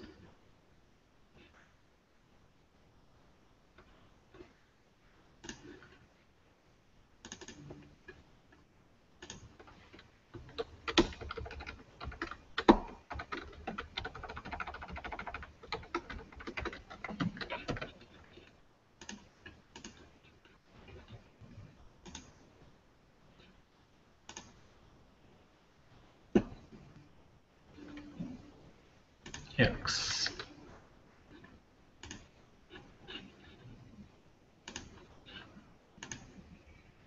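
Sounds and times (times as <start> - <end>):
typing on computer keyboard: 7.2 - 7.8, 9.2 - 20.2, 22.0 - 22.3, 31.4 - 33.7, 34.6 - 36.4.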